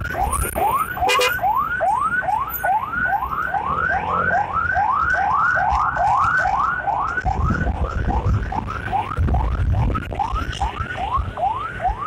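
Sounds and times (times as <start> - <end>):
ambulance siren yelping: 0.0 - 12.0
road noise: 0.0 - 12.0.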